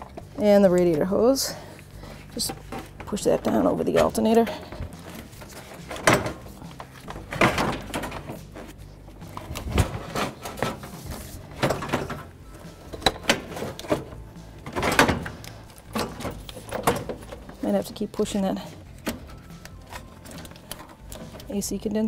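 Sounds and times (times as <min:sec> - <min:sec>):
metal parts knocking and scraping: 0:02.4 - 0:18.0.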